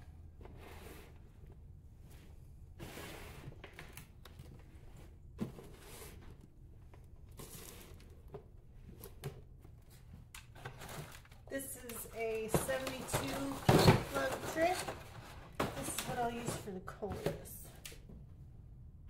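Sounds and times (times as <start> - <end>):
hands rustling potting mix: 9.9 - 17.6.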